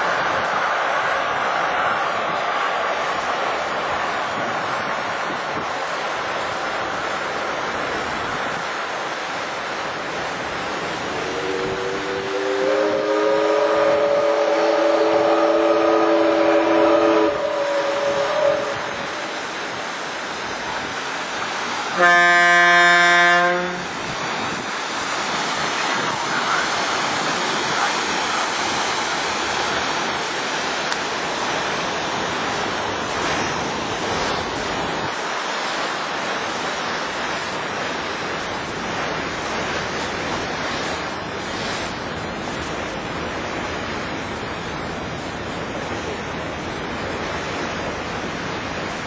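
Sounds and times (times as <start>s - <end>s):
churning water from paddles: 0.0s - 49.0s
wind on microphone: 10.7s - 21.0s
steamer horn: 11.0s - 19.8s, 21.9s - 24.0s.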